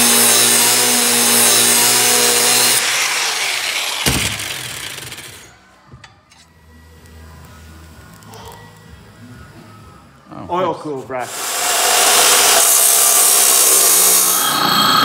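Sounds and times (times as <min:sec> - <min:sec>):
angle grinder cutting steel: 0:00.0 - 0:05.6, 0:11.3 - 0:15.0.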